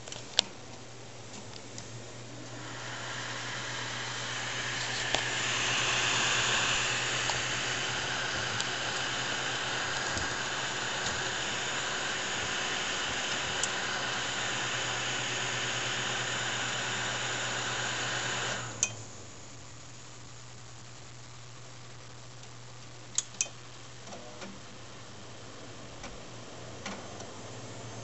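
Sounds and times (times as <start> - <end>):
computer cooling fans whirring: 0.0 - 28.0
click: 13.3 - 13.8, 18.8 - 19.0, 22.4 - 24.5.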